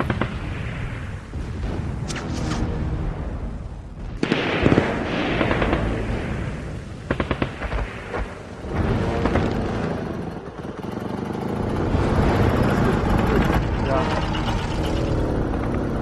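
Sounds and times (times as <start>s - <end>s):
explosions with rumbling tail: 0.0s - 9.5s
gunshots: 4.1s - 9.7s.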